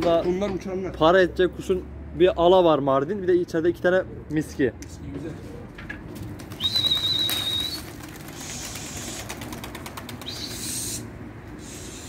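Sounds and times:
pigeon wings flapping: 6.2s - 10.7s.

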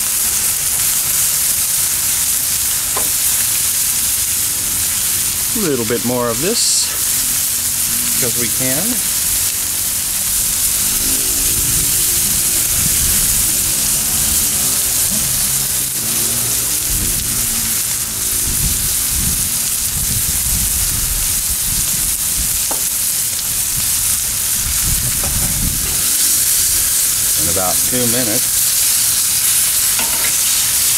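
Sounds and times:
steaks sizzling: 0.0s - 30.9s.

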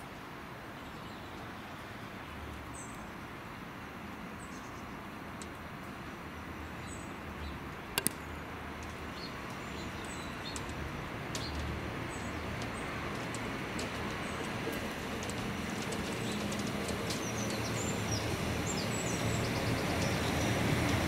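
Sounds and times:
birds chirping: 6.3s - 21.0s
sharp clicks: 8.0s - 8.9s
train low rumbling drone: 10.5s - 21.0s.

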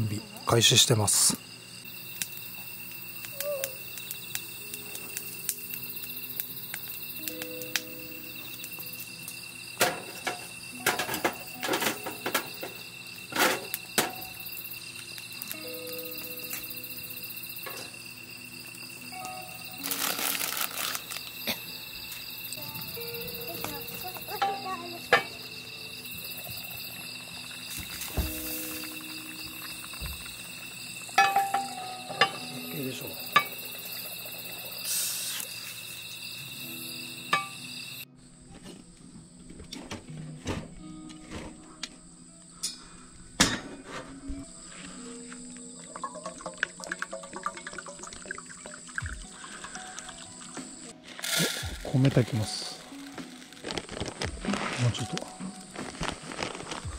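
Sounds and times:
insects singing: 0.0s - 40.0s, 40.7s - 56.9s
cooking gear knocking and clattering: 9.8s - 14.3s, 31.2s - 32.5s
metallic clinks of cookware: 31.2s - 33.6s, 37.3s - 37.6s.

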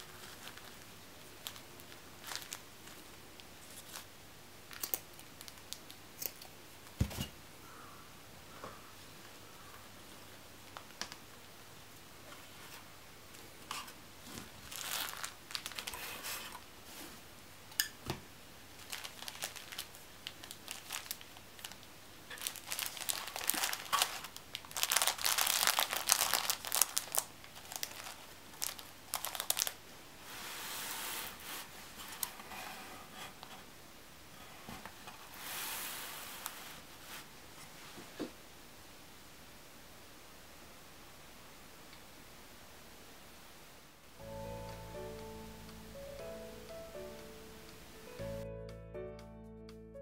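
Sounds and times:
plastic wrapping crinkling: 0.0s - 4.1s, 4.7s - 6.0s, 13.6s - 16.7s, 18.7s - 29.8s.

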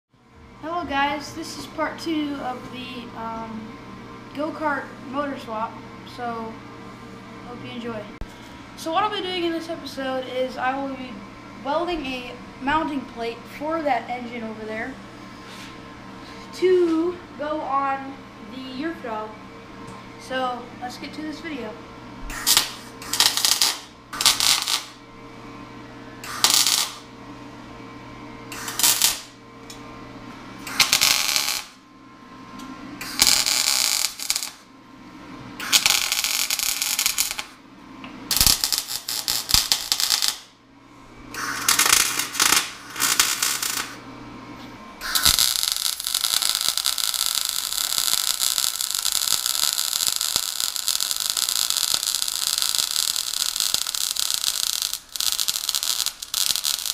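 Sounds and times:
steady low hum: 0.1s - 56.9s
welder arc crackling: 22.3s - 25.0s, 26.2s - 27.1s, 28.5s - 29.8s, 30.6s - 31.8s, 33.0s - 34.7s, 35.6s - 37.6s, 38.3s - 40.6s, 41.3s - 44.0s, 45.0s - 56.9s.

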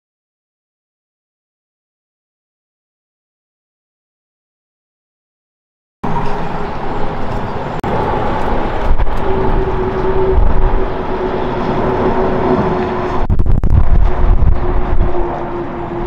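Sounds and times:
jet airliner rush with whine: 6.0s - 16.0s
low rumble: 6.0s - 16.0s.

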